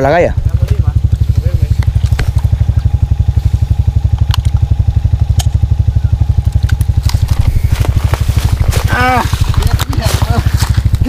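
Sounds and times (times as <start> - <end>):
engine running with rapid pulse: 0.0 - 11.0
sharp clicks: 4.0 - 5.7, 6.3 - 7.6.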